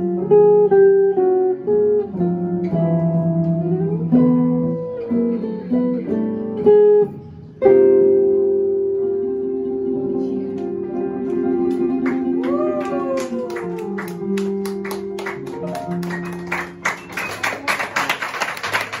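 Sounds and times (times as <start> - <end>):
piano and guitar jazz chord: 0.0 - 17.8
audience applause: 11.7 - 19.0.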